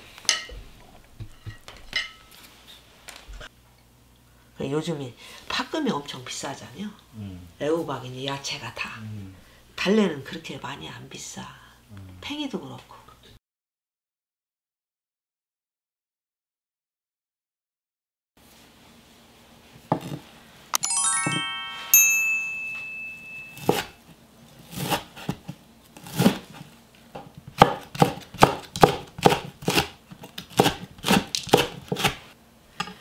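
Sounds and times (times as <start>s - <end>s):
rising chime-like tones: 20.8s - 23.7s
knife chopping on wooden board: 27.2s - 32.2s.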